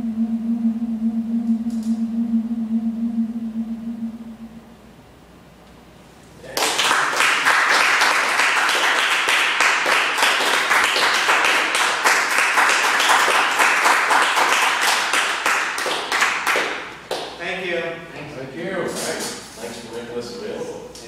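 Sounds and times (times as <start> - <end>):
audience applauding: 6.5 - 17.2.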